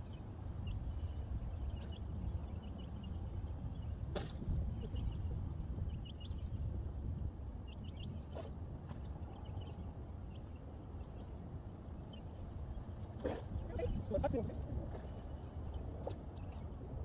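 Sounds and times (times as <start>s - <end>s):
wind rumbling on microphone: 0.0s - 17.0s
small birds chirping: 7.6s - 16.8s.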